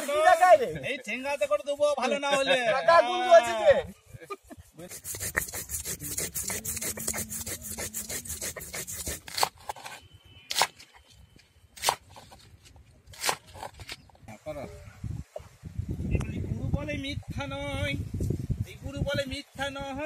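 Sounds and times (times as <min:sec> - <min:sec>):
stone roller grinding on slab: 0:04.9 - 0:10.0.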